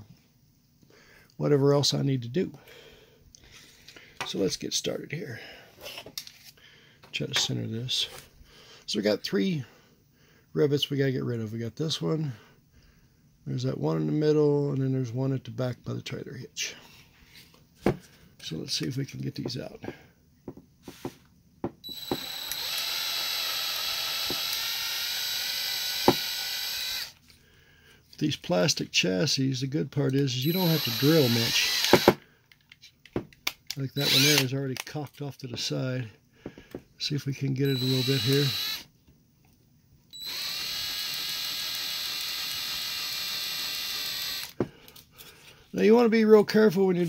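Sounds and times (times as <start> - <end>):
cordless drill whining: 21.8 - 27.2, 30.4 - 32.2, 34.0 - 34.5, 37.6 - 38.9, 40.1 - 44.7.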